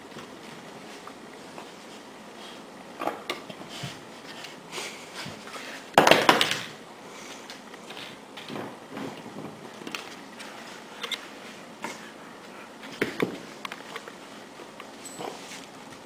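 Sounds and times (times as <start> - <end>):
dogs scuffling on floor: 9.9 - 16.0.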